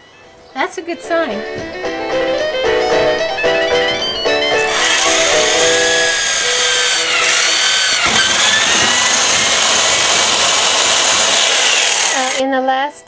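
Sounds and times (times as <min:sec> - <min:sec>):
drill boring through metal: 0:04.7 - 0:12.4.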